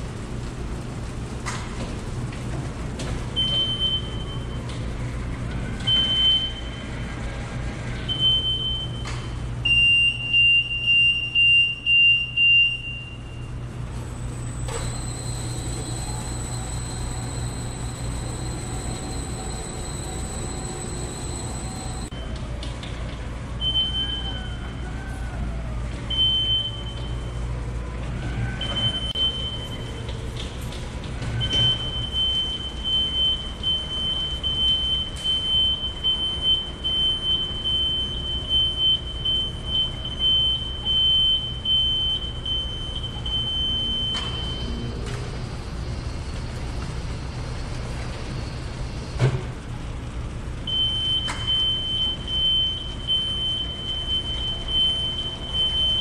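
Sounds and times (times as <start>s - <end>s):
high-pitched warning tone: 14.7s - 22.1s.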